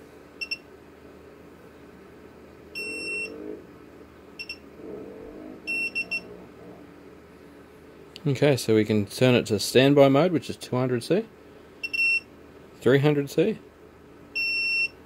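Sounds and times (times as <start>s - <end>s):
high electronic beeps: 2.8s - 3.4s, 4.4s - 4.6s, 5.7s - 6.3s.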